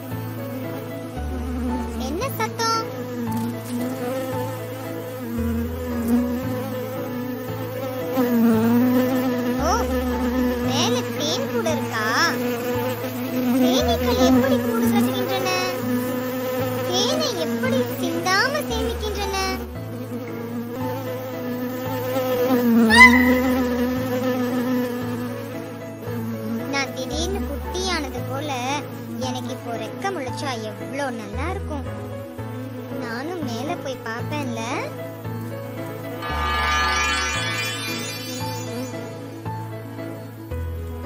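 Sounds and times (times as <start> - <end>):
cartoon bee buzzing: 0.0 - 40.3
background music: 0.0 - 41.0
short rising chirps: 22.9 - 23.8, 36.2 - 39.6.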